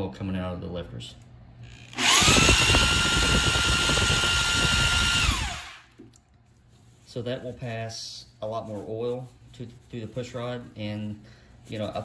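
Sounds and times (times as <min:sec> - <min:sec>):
electric drill whining: 0:01.7 - 0:05.9.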